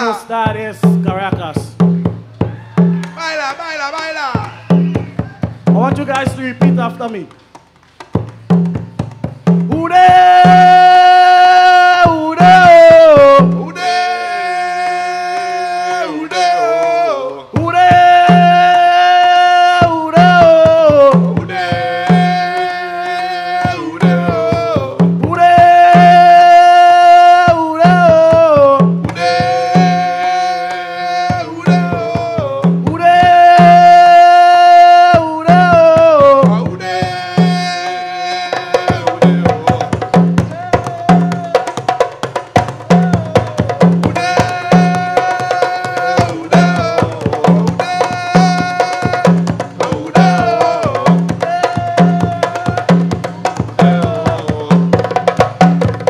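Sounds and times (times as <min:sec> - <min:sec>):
hand drums beating: 0:00.0 - 0:14.1, 0:15.5 - 0:56.0
man singing long notes: 0:09.7 - 0:41.8, 0:42.9 - 0:55.2.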